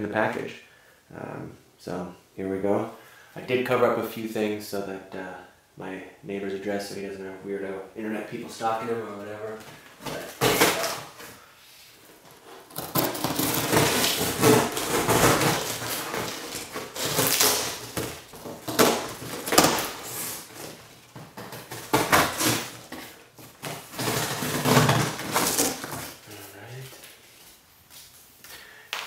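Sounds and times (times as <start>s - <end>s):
cardboard scraping and rustling: 12.0s - 26.6s.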